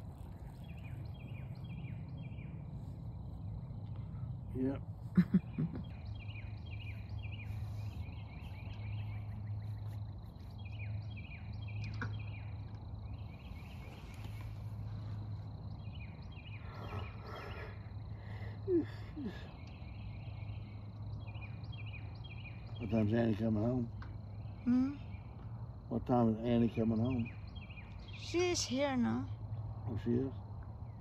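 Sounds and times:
steady low hum: 0:00.0 - 0:31.0
high chirping animal calls: 0:15.8 - 0:23.2.

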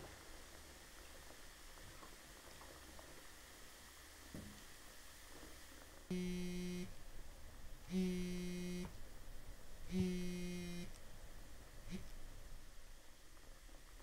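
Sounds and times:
phone vibrating on tabletop: 0:06.1 - 0:07.0, 0:07.9 - 0:09.0, 0:09.9 - 0:11.0, 0:11.9 - 0:12.1.

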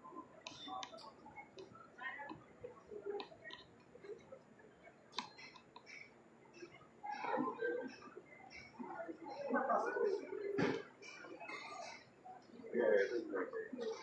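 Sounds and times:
murmur of people: 0:00.0 - 0:14.0.

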